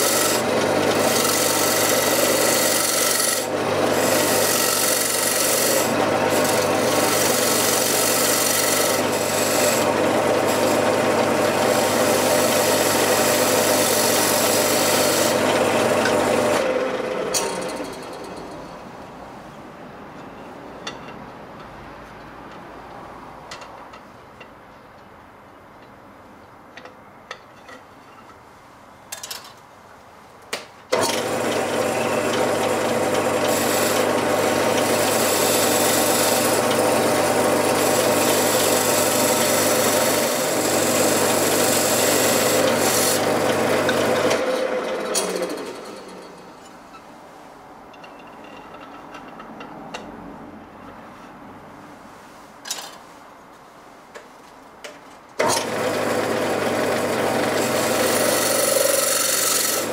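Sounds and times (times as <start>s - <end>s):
wood lathe motor hum: 0.0s - 18.4s, 30.9s - 46.3s, 55.4s - 59.9s
turning tool scraping wood: 0.0s - 18.5s, 31.0s - 46.3s, 55.4s - 59.9s.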